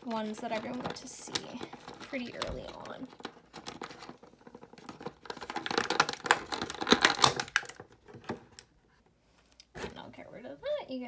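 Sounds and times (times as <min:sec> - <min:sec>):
plastic blister tray crackling: 0:00.0 - 0:08.7.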